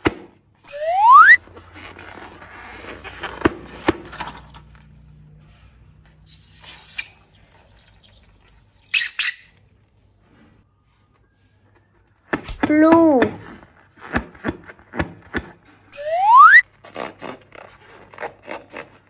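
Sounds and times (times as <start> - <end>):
rising squeal: 16.0 - 16.6.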